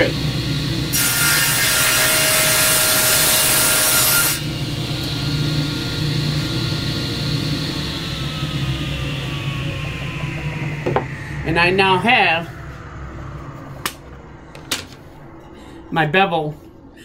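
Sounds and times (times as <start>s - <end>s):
saw running with hum: 0.0s - 15.4s.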